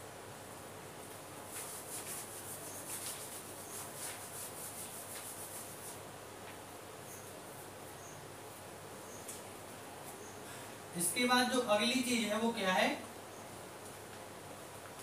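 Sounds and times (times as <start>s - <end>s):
rubbing plastic sheet: 1.5s - 6.0s.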